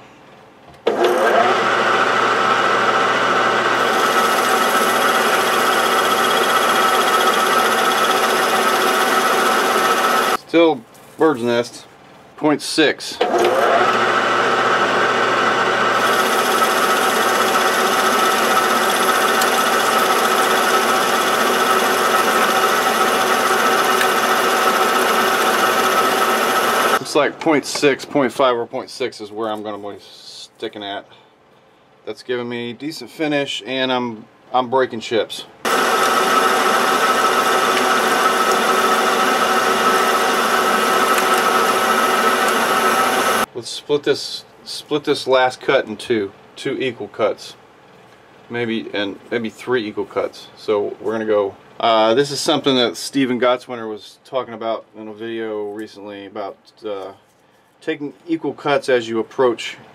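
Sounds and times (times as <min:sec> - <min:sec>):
lathe tool cutting metal: 0:00.9 - 0:10.4, 0:15.9 - 0:27.1, 0:35.7 - 0:43.5
metal lathe whine: 0:03.4 - 0:10.4, 0:13.3 - 0:27.1, 0:35.7 - 0:43.5.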